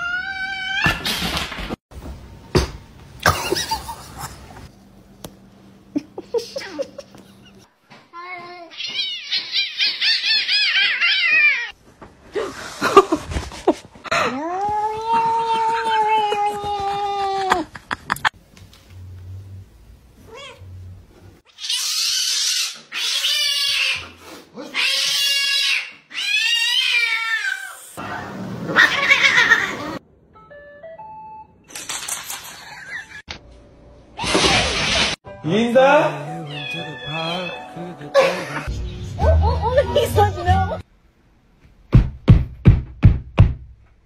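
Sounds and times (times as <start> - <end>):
cat yowling: 8.8 - 11.8, 24.6 - 27.8, 36.5 - 37.7
cat meowing: 36.5 - 37.7.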